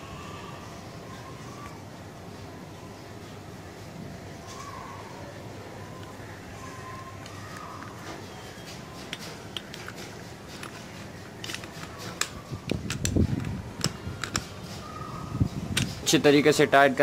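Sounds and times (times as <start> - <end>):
hand tools clicking on metal: 7.2 - 14.6.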